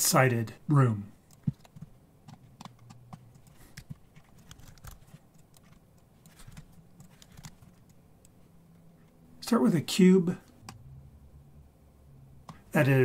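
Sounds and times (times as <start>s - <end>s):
computer mouse clicks: 1.2s - 8.4s
keyboard typing: 1.2s - 8.4s.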